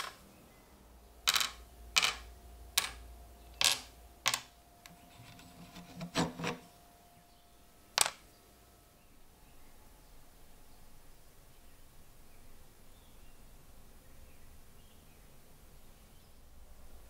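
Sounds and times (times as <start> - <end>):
washers clicking on metal rod: 1.3 - 3.0, 3.6 - 6.6.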